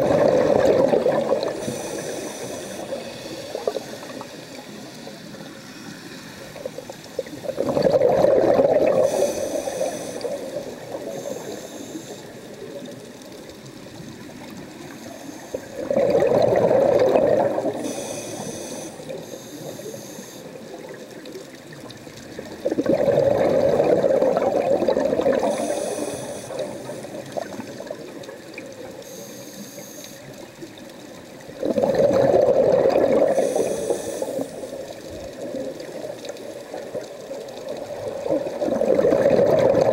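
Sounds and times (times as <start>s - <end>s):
underwater regulator exhaust bubbling: 0.0s - 5.0s, 6.6s - 19.8s, 20.6s - 29.2s, 31.4s - 39.9s.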